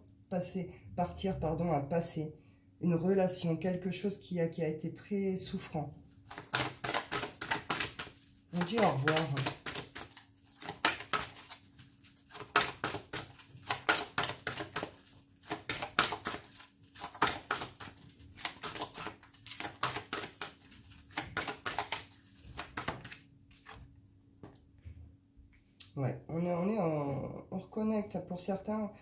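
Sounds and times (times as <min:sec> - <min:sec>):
faint steady hum: 0:00.0 - 0:19.8
cards being shuffled: 0:06.2 - 0:24.7.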